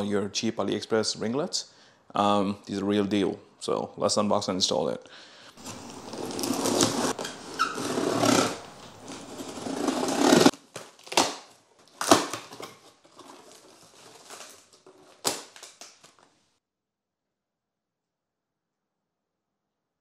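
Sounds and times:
cardboard flaps pulled open: 5.6s - 11.3s
blade slitting packing tape: 5.6s - 16.2s
box and packaging rustling: 5.6s - 16.4s.

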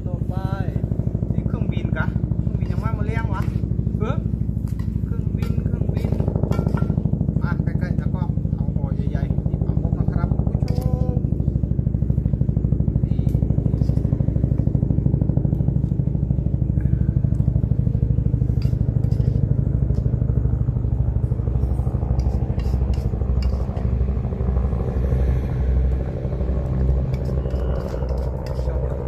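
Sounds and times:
aircraft engine droning overhead: 0.0s - 29.0s
metal spoon scraping steel bowl: 4.7s - 7.0s, 18.6s - 19.6s, 21.6s - 24.0s, 27.1s - 29.0s.

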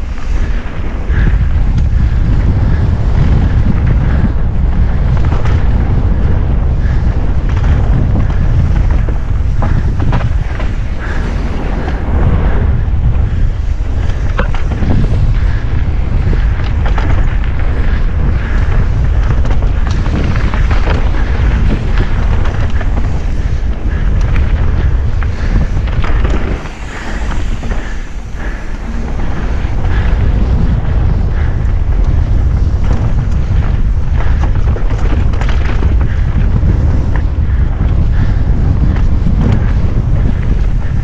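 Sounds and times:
wind buffeting microphone: 0.0s - 41.0s
bike clattering over rocks: 13.1s - 28.4s, 31.5s - 37.4s.

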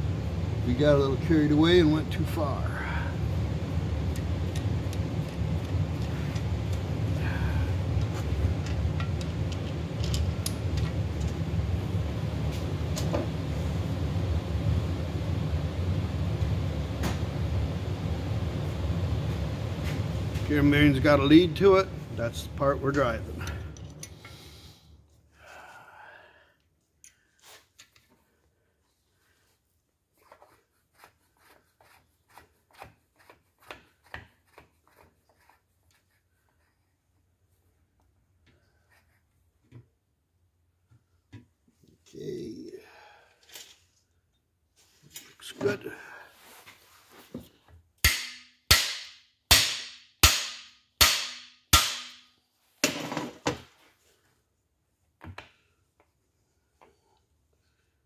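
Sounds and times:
hammer striking steel: 48.0s - 52.3s.

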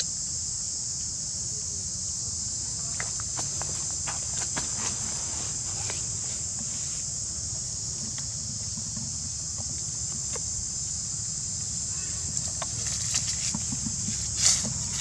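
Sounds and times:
insect chorus drone: 0.0s - 15.0s
faint clicks and rustles: 12.2s - 15.0s.

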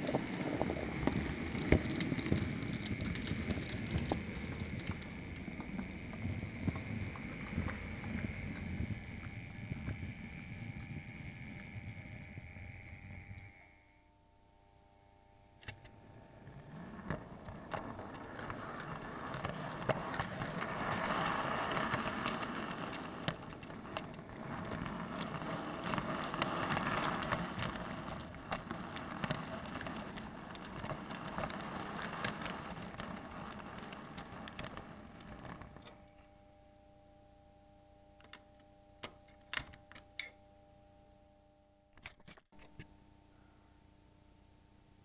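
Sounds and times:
model train wheels rumbling on rail: 0.0s - 13.6s, 15.9s - 36.0s
wheels clicking over rail joints: 0.0s - 13.6s, 15.6s - 36.4s, 38.2s - 40.4s.

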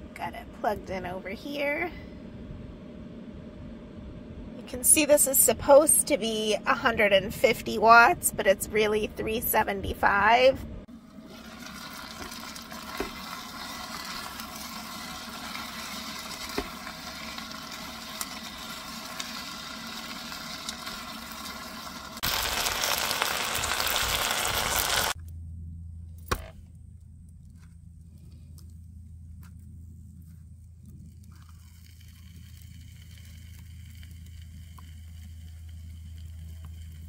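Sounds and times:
quiet low hum: 0.0s - 21.9s, 25.2s - 37.0s
food sizzling in pot: 10.9s - 25.2s, 31.4s - 37.0s.

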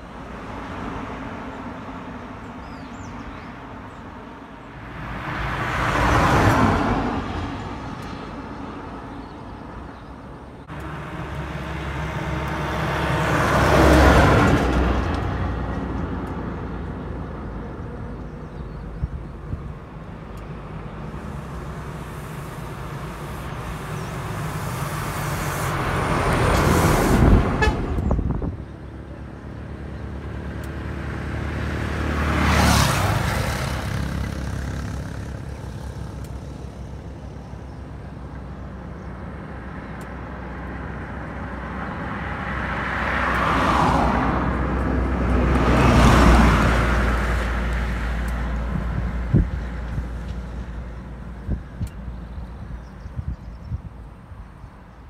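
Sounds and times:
vehicles passing by: 0.0s - 55.0s.

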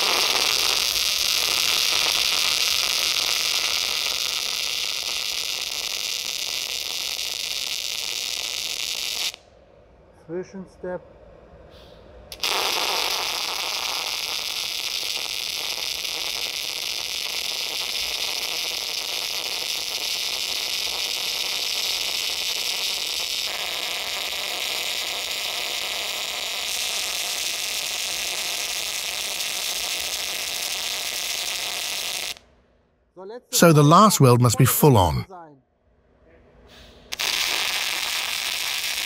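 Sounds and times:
welding arc hissing and crackling: 0.0s - 9.4s, 12.4s - 32.4s, 37.2s - 39.0s.

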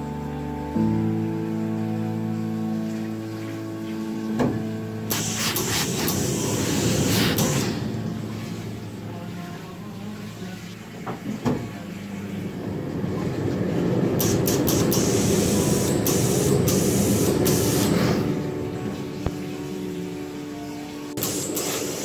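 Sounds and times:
steam hissing: 5.0s - 9.2s, 12.3s - 20.2s, 21.1s - 22.0s
knocks of steam iron: 5.1s - 7.8s, 14.2s - 18.2s, 21.2s - 22.0s.

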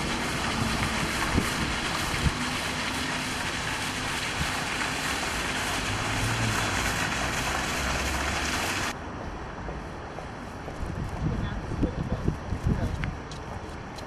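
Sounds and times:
wind on microphone: 0.0s - 4.8s, 10.7s - 13.6s
fast-flowing floodwater: 0.0s - 9.0s.

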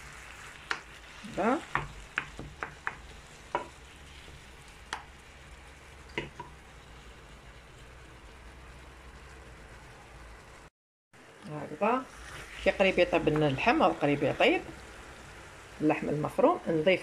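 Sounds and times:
meat sizzling in oil: 0.0s - 10.7s, 11.6s - 17.0s
wooden spoon knocking pan: 1.6s - 3.8s, 6.1s - 6.6s.

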